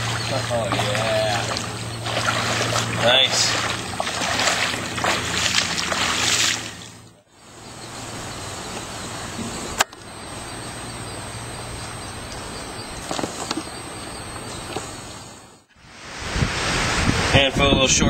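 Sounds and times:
feet splashing through shallow water: 0:00.0 - 0:07.1
wind: 0:00.0 - 0:18.0.

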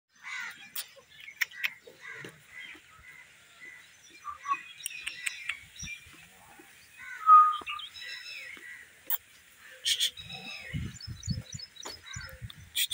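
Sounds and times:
sharp clicks: 0:04.8 - 0:05.6.

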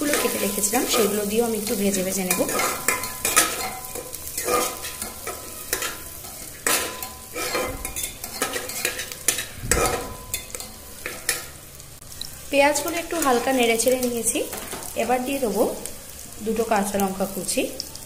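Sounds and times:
metal spatula scraping pot: 0:00.0 - 0:11.6
onions sizzling in butter: 0:00.0 - 0:18.0.

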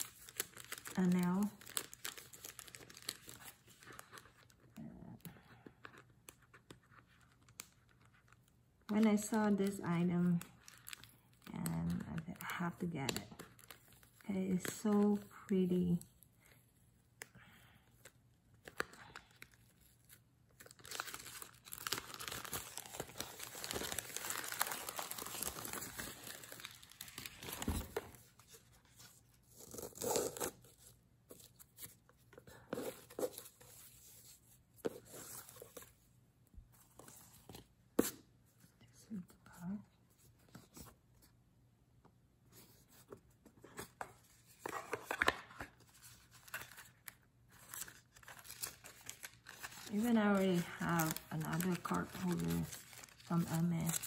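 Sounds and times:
paper wrapping crinkling: 0:00.0 - 0:04.7, 0:09.6 - 0:15.5, 0:18.6 - 0:36.0, 0:42.6 - 0:54.0.

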